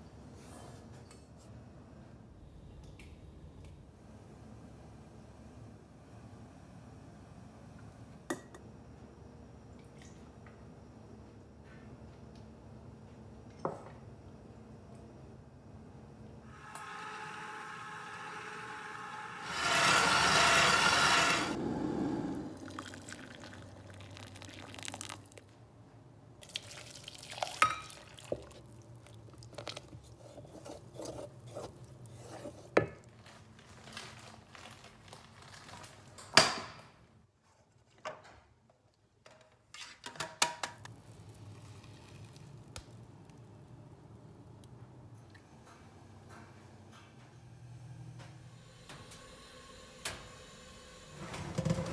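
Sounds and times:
stand mixer whisking: 16.9s - 21.6s
wet squishes of batter: 26.4s - 33.4s, 40.8s - 43.7s
utensil scraping steel bowl: 29.8s - 32.8s.

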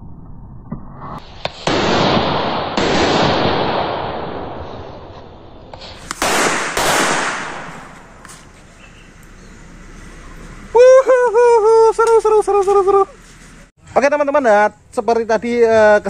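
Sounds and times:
firecracker cracking: 1.0s - 8.8s
firecracker hissing and fizzing: 1.1s - 8.6s.

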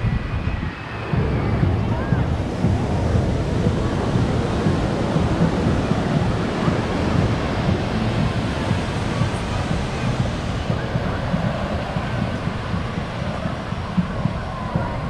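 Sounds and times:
faint crowd chatter: 0.0s - 15.0s
wind buffeting microphone: 0.0s - 15.0s.

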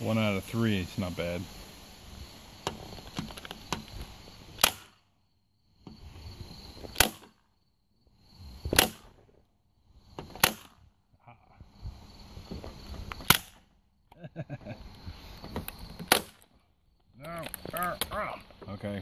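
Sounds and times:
staple gun firing: 4.6s - 4.9s, 7.0s - 7.3s.

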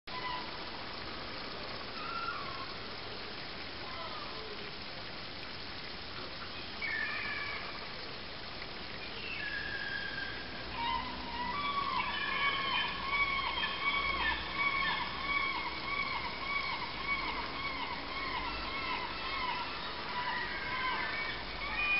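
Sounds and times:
steady background hiss: 0.1s - 21.9s
gulls calling: 6.8s - 8.0s, 9.0s - 21.9s.

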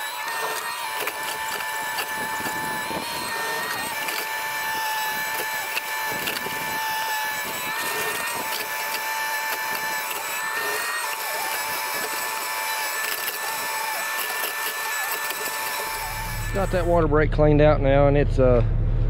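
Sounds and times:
mini excavator engine running: 0.0s - 17.6s
high-pitched hydraulic whine: 9.7s - 19.0s.

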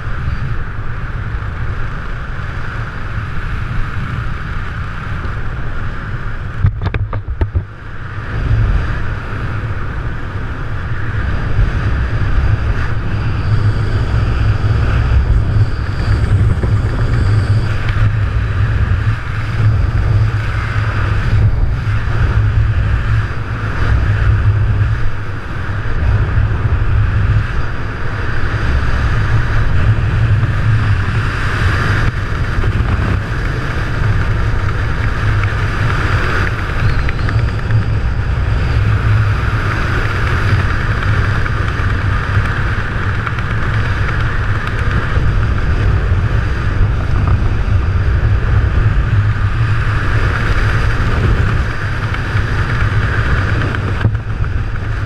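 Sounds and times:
wind rushing over microphone: 0.0s - 55.0s.

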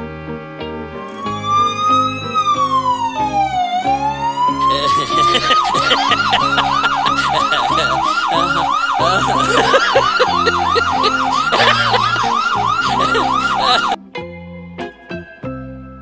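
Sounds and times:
police siren yelping: 1.1s - 14.0s.

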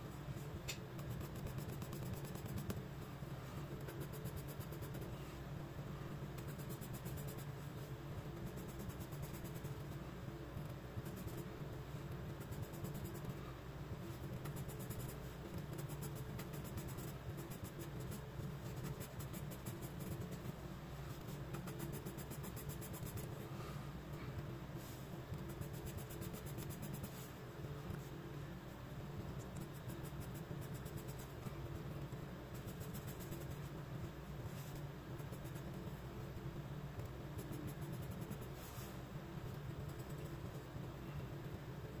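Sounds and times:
steady low hum: 0.0s - 42.0s
pencil scratching on paper: 8.4s - 9.8s, 14.3s - 20.4s, 21.5s - 23.3s, 25.4s - 27.3s, 29.6s - 31.4s, 32.5s - 33.6s.

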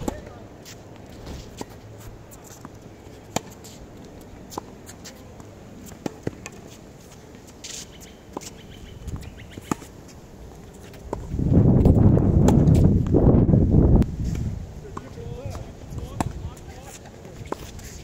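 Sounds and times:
tennis ball bouncing: 2.4s - 3.8s, 4.4s - 6.7s, 8.3s - 9.9s.

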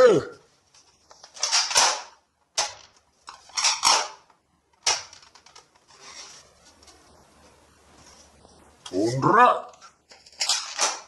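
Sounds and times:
plastic toy blasters clacking: 1.2s - 5.7s, 10.1s - 11.0s.

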